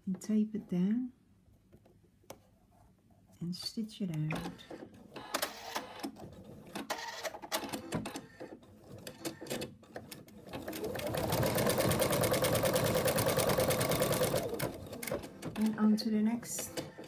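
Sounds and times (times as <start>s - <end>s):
embroidery machine stitching: 6.8s - 15.9s.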